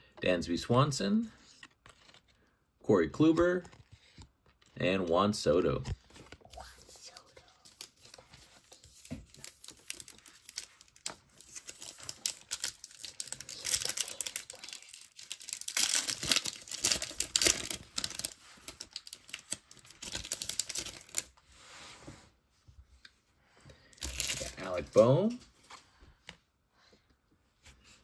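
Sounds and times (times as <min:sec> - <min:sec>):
cards rustling and clicking: 0:01.4 - 0:02.5, 0:03.2 - 0:04.8, 0:05.7 - 0:21.3, 0:24.0 - 0:26.4
wrapper crinkling and tearing: 0:01.6 - 0:02.4, 0:06.0 - 0:21.3, 0:24.0 - 0:25.0.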